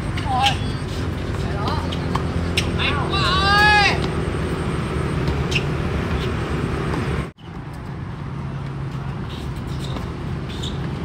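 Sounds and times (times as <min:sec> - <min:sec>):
outdoor rumble with low hum: 0:00.0 - 0:11.0.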